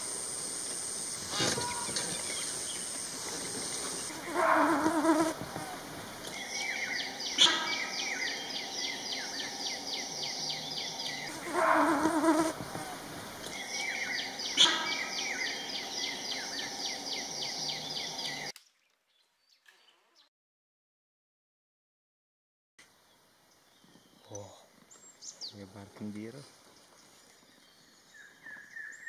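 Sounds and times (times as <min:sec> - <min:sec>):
lower animal call: 0:01.3 - 0:02.8, 0:04.1 - 0:18.5.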